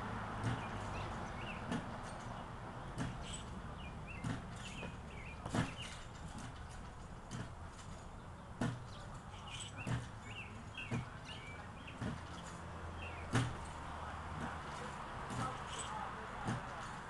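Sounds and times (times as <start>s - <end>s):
birds chirping: 0.0s - 17.0s
thumps on trampoline mat: 0.4s - 2.2s, 2.9s - 3.5s, 4.1s - 8.0s, 8.6s - 10.2s, 10.8s - 12.6s, 13.2s - 13.8s, 14.4s - 17.0s.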